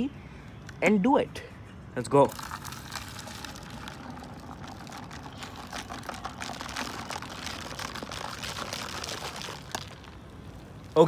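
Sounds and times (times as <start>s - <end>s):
dry ice fizzing in soapy water: 2.3s - 10.2s.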